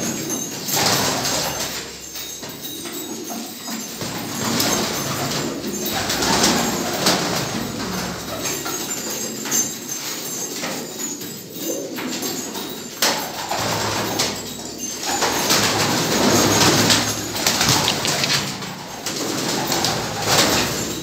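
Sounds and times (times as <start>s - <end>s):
pigeons cooing: 0.0s - 21.0s
wing flaps and scuffling: 15.0s - 20.9s.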